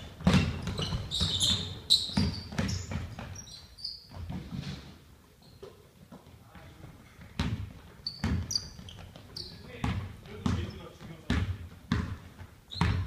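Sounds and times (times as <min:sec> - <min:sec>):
basketball bouncing: 0:00.0 - 0:03.4, 0:07.2 - 0:13.0
sneakers squeaking on hardwood: 0:00.0 - 0:13.0.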